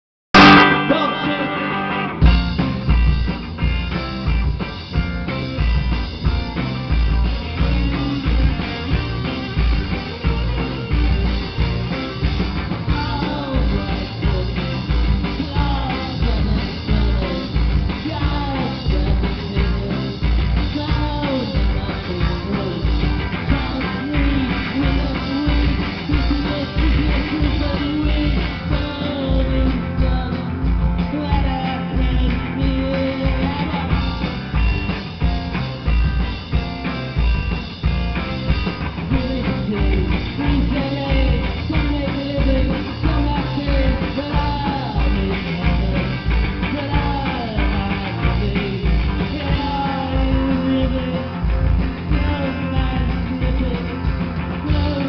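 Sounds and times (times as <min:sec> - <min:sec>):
live rock band playing: 0:00.3 - 0:55.0.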